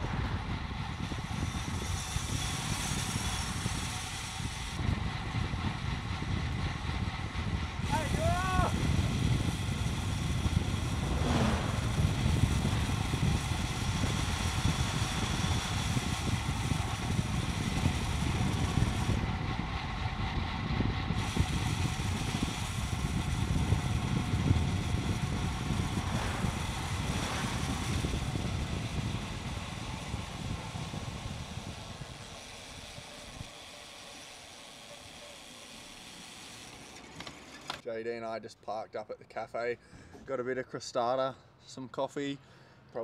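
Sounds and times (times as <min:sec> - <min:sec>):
wind buffeting microphone: 0:00.0 - 0:33.5.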